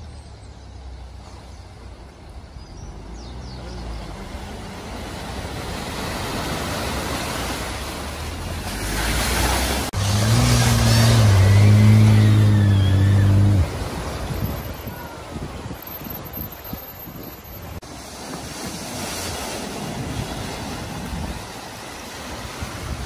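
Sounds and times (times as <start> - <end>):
rushing water: 0.0 - 23.0
water splashing: 0.8 - 23.0
car engine running hard: 8.8 - 14.1.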